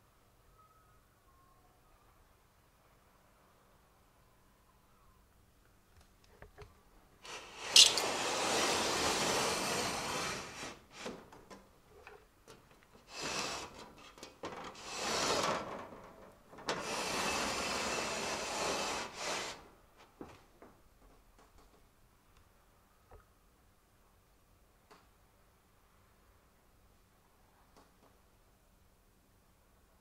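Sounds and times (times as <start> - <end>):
sliding doors scraping on wooden runners: 7.3 - 11.4, 13.0 - 19.6.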